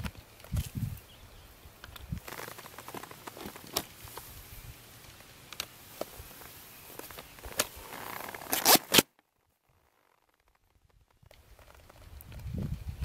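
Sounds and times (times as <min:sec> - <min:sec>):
ski boot scraping into binding: 0:02.2 - 0:04.4, 0:06.0 - 0:09.1.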